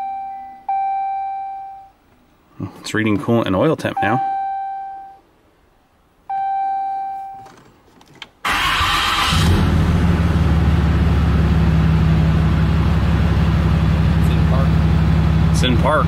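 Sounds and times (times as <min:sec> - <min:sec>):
dashboard chime dinging: 0:04.0 - 0:05.2
diesel engine starting and idling: 0:08.4 - 0:16.0.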